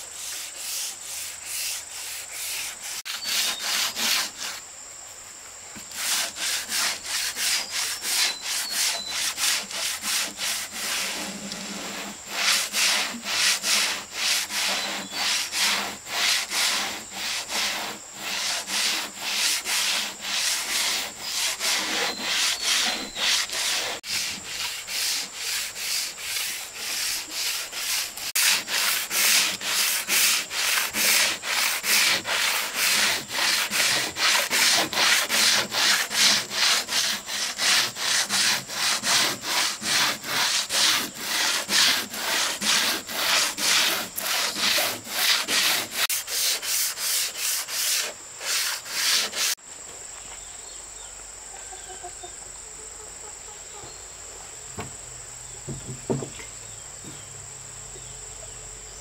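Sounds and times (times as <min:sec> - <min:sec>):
wood being sanded by hand: 0:00.0 - 0:04.6, 0:05.8 - 0:49.6
faint knocks: 0:55.6 - 0:57.3.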